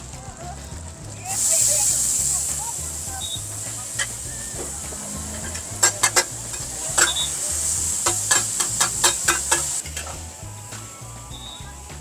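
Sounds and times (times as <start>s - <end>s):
food sizzling on a griddle: 0.0s - 12.0s
metal spatulas clacking: 5.3s - 7.3s, 8.0s - 10.2s.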